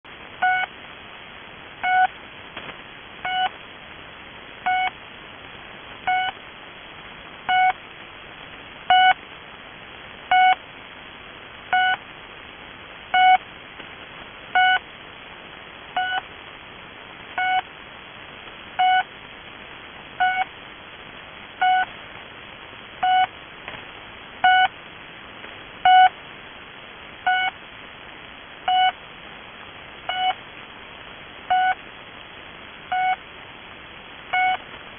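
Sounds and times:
receiver hiss: 0:00.1 - 0:34.9
short radio beeps: 0:00.4 - 0:00.7, 0:01.8 - 0:02.1, 0:03.3 - 0:03.5, 0:04.7 - 0:05.0, 0:06.1 - 0:06.4, 0:07.5 - 0:07.8, 0:08.9 - 0:09.2, 0:10.3 - 0:10.6, 0:11.7 - 0:12.0, 0:13.1 - 0:13.4, 0:14.6 - 0:14.8, 0:16.0 - 0:16.2, 0:17.4 - 0:17.7, 0:18.8 - 0:19.1, 0:20.2 - 0:20.5, 0:21.6 - 0:21.9, 0:23.0 - 0:23.3, 0:24.4 - 0:24.8, 0:25.8 - 0:26.2, 0:27.3 - 0:27.6, 0:28.7 - 0:29.0, 0:30.1 - 0:30.4, 0:31.5 - 0:31.8, 0:32.9 - 0:33.2, 0:34.3 - 0:34.6.

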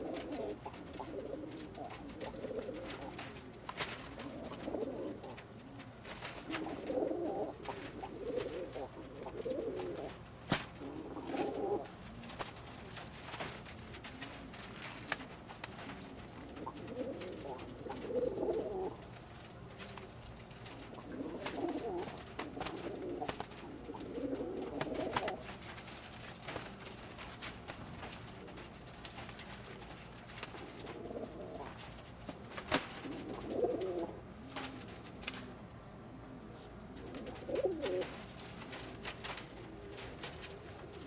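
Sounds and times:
pigeons cooing: 0:00.0 - 0:41.0.

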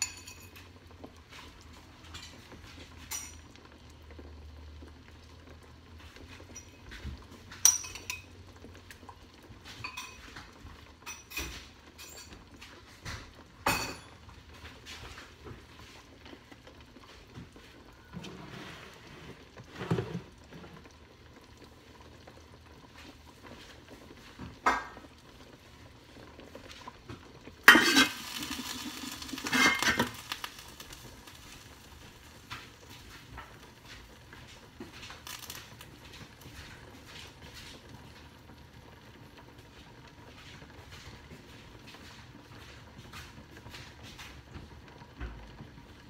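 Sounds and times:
clattering and rustling: 0:09.6 - 0:20.9, 0:26.2 - 0:38.1.

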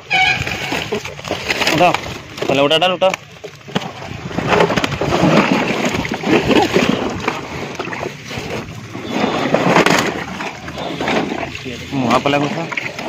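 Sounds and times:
water splashing and sloshing: 0:00.0 - 0:13.0.

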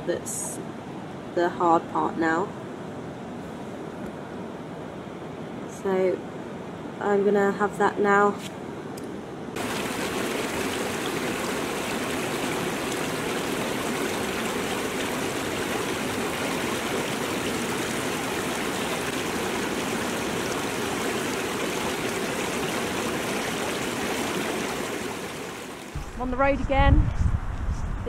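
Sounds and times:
stream flowing over stones: 0:09.6 - 0:26.2.

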